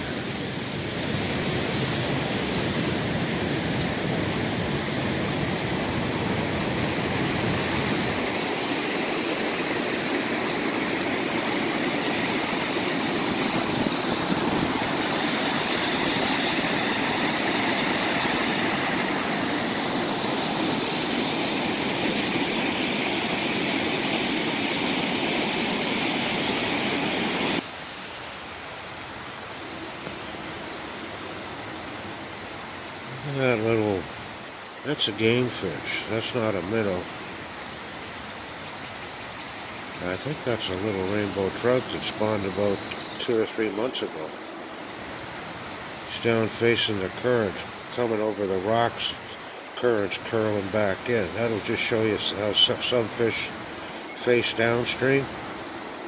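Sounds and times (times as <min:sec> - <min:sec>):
wind rumbling on microphone: 0:00.0 - 0:27.6
river water rushing over rocks: 0:00.0 - 0:29.6, 0:42.7 - 0:56.0.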